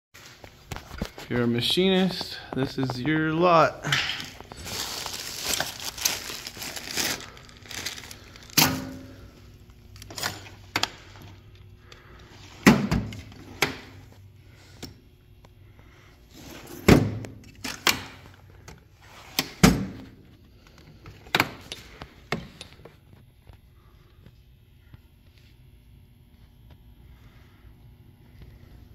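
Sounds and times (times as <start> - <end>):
plastic wrapping crinkling: 0.2 - 8.6.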